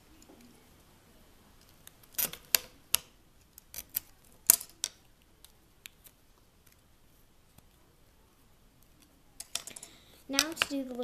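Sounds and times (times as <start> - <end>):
knife and plastic tapping on stone: 9.4 - 11.0.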